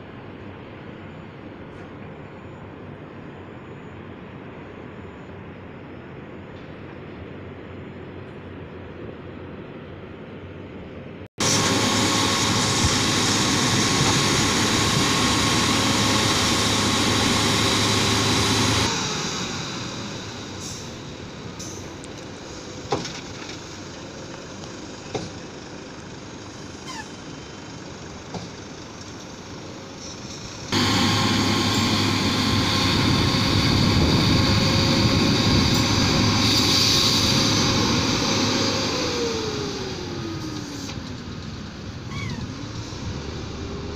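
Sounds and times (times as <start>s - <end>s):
diesel truck engine running: 11.4s - 43.9s.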